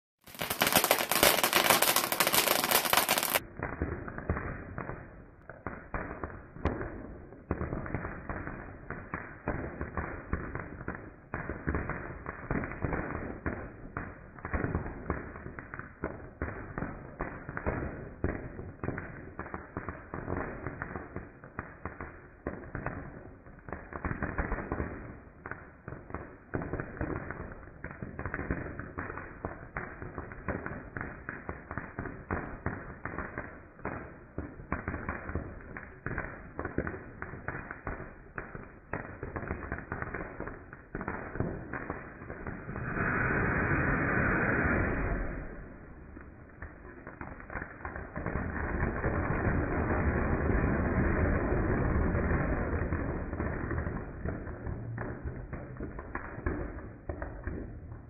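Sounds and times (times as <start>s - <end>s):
firework crackling and popping: 0.2s - 58.0s.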